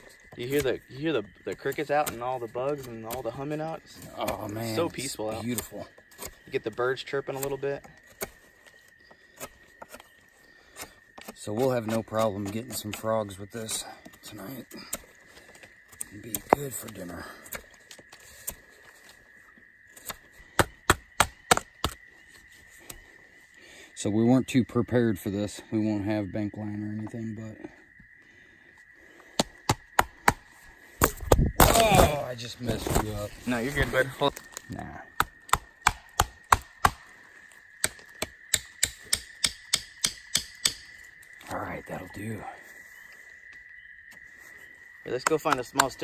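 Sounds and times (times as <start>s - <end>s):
insect drone: 0.0s - 46.0s
knife chopping wood: 20.0s - 22.1s, 29.4s - 32.2s, 35.1s - 37.1s, 37.8s - 40.9s.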